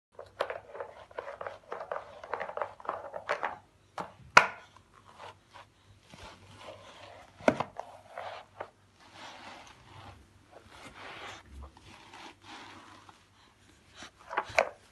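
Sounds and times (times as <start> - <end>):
soft rubbing and shuffling: 4.8 - 14.9
plastic object scrubbing on carpet: 5.0 - 13.4.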